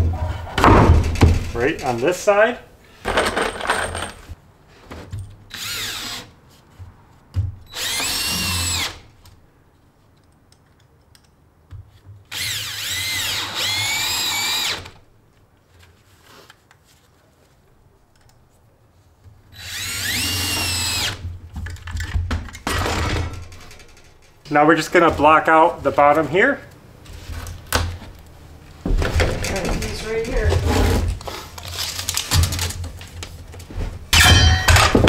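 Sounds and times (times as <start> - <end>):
cordless drill driving screws: 5.5 - 6.3, 7.7 - 9.0, 12.3 - 15.0, 19.6 - 21.2.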